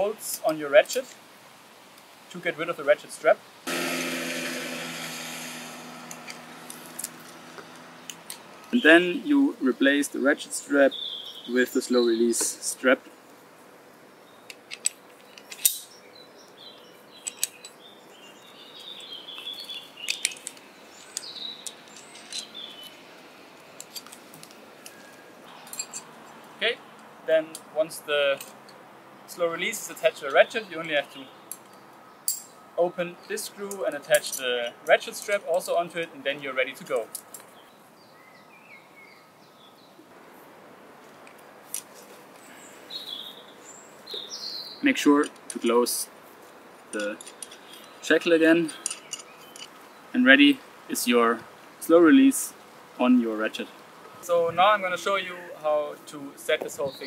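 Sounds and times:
birds chirping: 4.0 - 40.1, 41.4 - 57.0
metallic shackle click: 14.5 - 15.9, 17.2 - 17.8.

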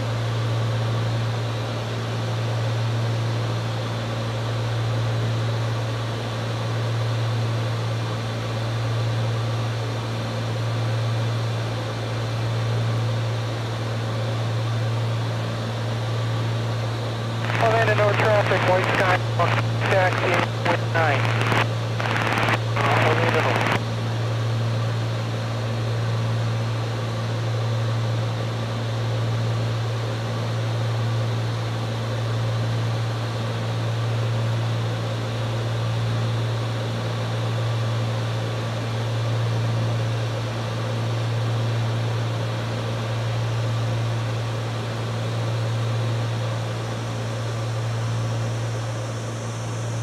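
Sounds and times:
airplane engine drone: 0.0 - 50.0.

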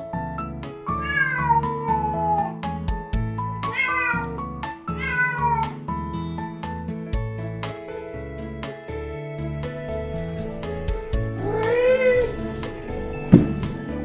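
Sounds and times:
light background music: 0.0 - 14.0
cat meowing: 0.9 - 2.6, 3.6 - 5.8, 10.0 - 13.8.

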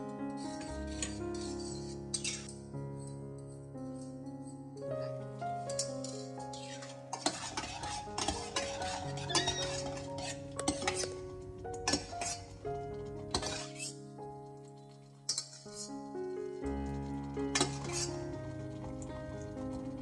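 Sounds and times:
background music: 0.0 - 20.0
metal spoon scraping in pot: 0.3 - 3.5, 5.7 - 11.2, 11.8 - 12.5, 13.3 - 14.0, 15.3 - 16.0, 17.5 - 18.2.

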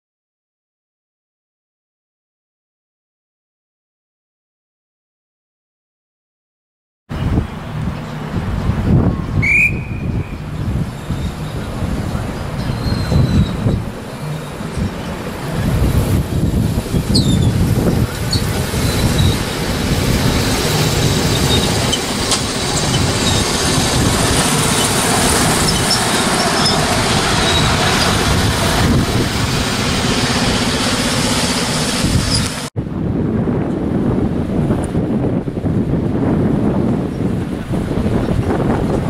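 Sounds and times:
miniature train rolling on track: 11.0 - 32.7.

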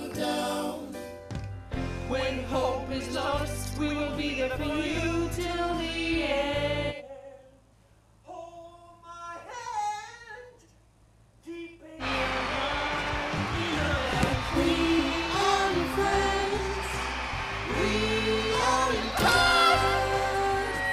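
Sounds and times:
backing music with bass: 0.0 - 6.9, 12.0 - 20.9
person singing: 12.0 - 20.9.

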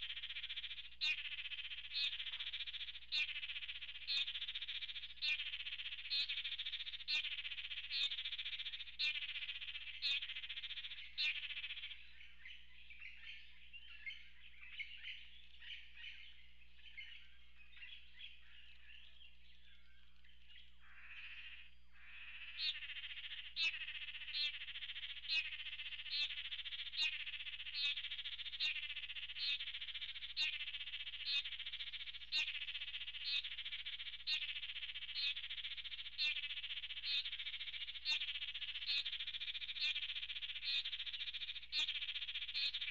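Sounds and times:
loud sharp frog call: 0.0 - 12.0, 20.8 - 42.9
frogs chorus: 0.0 - 42.9.

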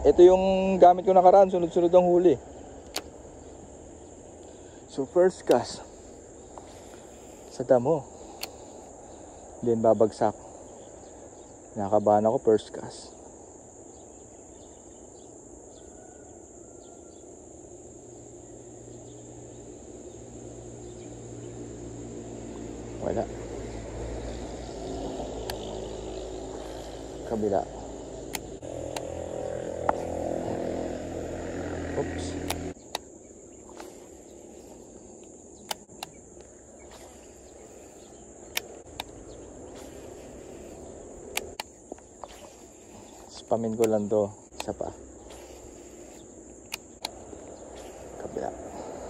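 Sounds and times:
low hum: 0.0 - 9.6, 17.5 - 49.0
insects trilling: 0.0 - 49.0
fishing reel clicks: 28.2 - 29.2, 36.9 - 47.2.

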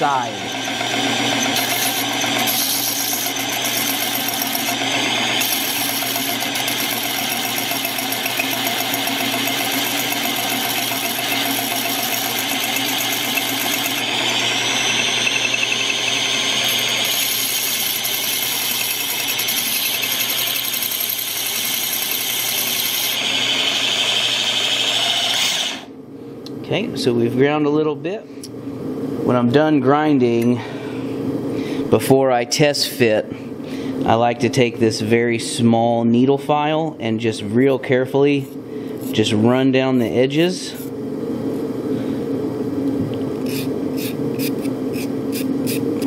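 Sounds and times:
drill motor whine: 0.0 - 25.9
grinding hiss: 0.8 - 23.2.

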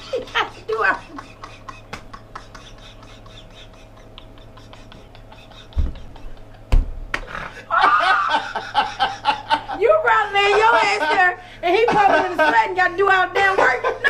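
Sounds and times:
people laughing: 0.0 - 14.0
heavy thumps: 5.7 - 7.4.

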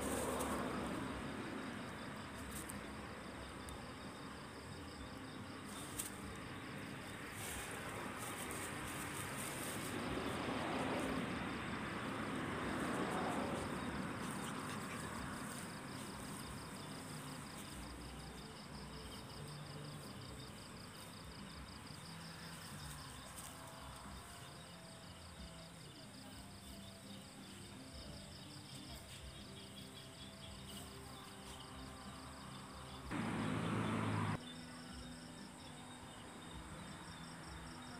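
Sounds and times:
rustling in grass: 0.0 - 1.4, 2.2 - 3.2, 5.0 - 24.7
insects chirring: 0.0 - 37.9.

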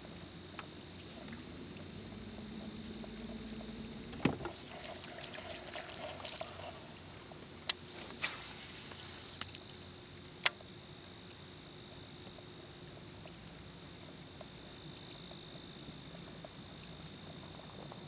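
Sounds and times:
water splashing and dripping: 1.1 - 10.6
brief hiss: 7.8 - 9.6.

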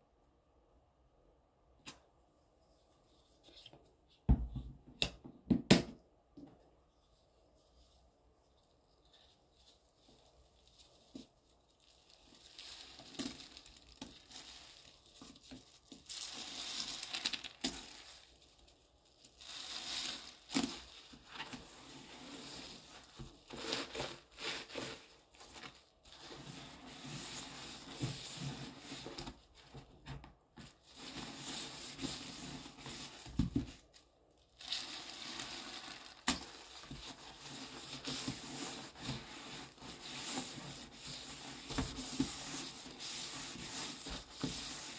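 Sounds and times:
sponge scrubbing and squishing: 19.3 - 29.2, 34.6 - 44.9.

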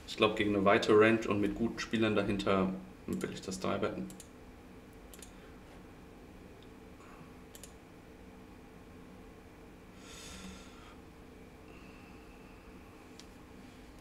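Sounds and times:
low electrical hum: 0.0 - 14.0
computer mouse clicks: 4.1 - 4.3, 5.1 - 5.4, 7.5 - 7.8.

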